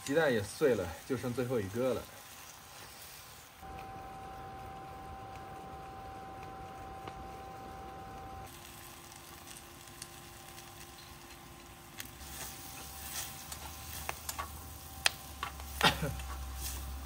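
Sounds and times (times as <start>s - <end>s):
vegetables sizzling in a wok: 0.0s - 3.9s, 8.4s - 17.0s.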